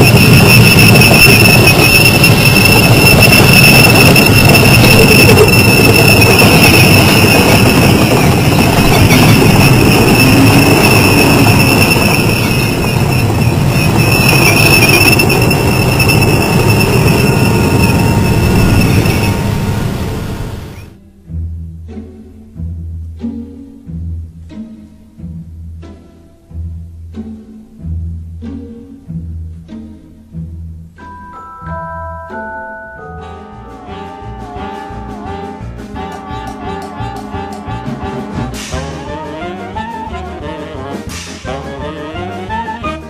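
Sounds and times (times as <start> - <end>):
gas turbine whine: 0.0 - 21.0
tank tracks rumbling: 0.0 - 21.0.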